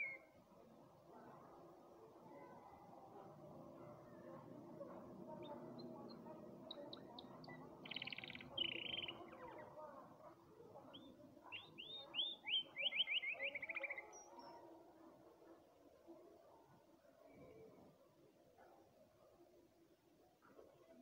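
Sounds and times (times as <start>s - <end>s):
canary singing: 7.8s - 9.3s.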